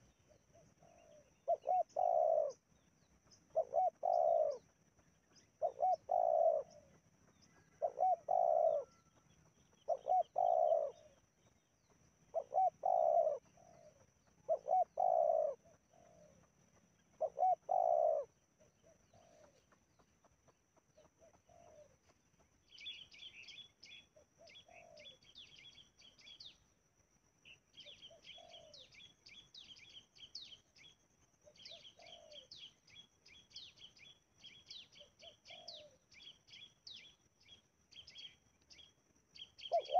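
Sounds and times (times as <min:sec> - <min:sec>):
dove cooing: 0:00.0 - 0:02.6, 0:03.5 - 0:04.7, 0:05.6 - 0:07.0, 0:07.6 - 0:11.2, 0:12.3 - 0:16.5, 0:17.1 - 0:19.7, 0:21.0 - 0:22.1, 0:23.9 - 0:25.2, 0:27.8 - 0:28.9, 0:31.4 - 0:32.7, 0:34.7 - 0:36.0, 0:39.6 - 0:39.9
small birds twittering: 0:00.0 - 0:26.8, 0:27.4 - 0:39.9.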